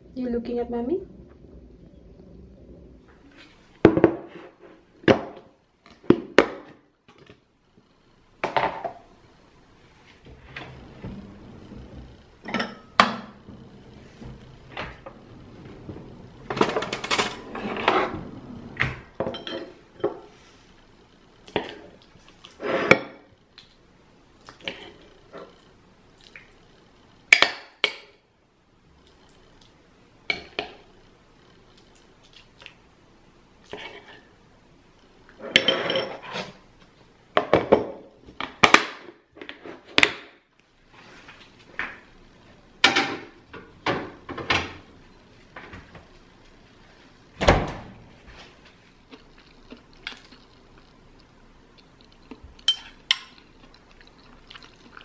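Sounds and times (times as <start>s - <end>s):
dishes and cutlery clinking: 12.4s - 13.2s, 19.2s - 20.3s, 35.4s - 36.5s, 52.6s - 53.5s.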